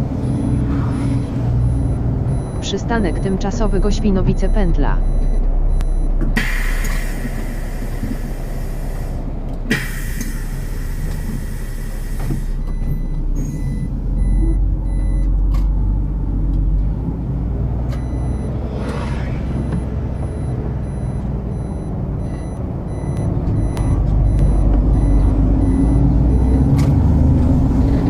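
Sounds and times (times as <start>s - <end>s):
diesel engine running: 0.0s - 28.0s
bus air brakes hissing: 6.4s - 12.6s.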